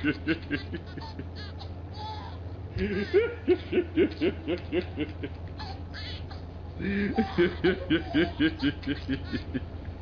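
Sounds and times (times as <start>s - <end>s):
person laughing hard: 0.0s - 1.4s, 2.8s - 5.4s, 6.8s - 9.7s.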